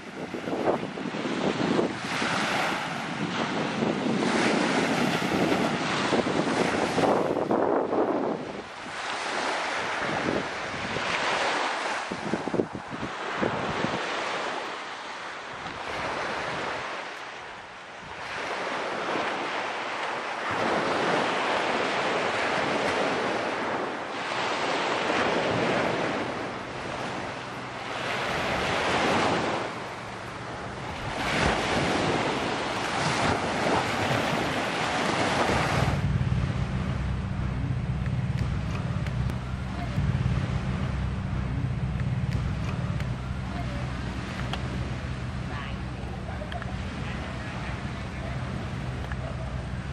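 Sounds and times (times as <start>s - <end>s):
wind buffeting microphone: 0.0s - 14.7s, 15.4s - 49.9s
sea waves breaking on shore: 0.0s - 49.9s
low engine hum: 24.9s - 49.9s.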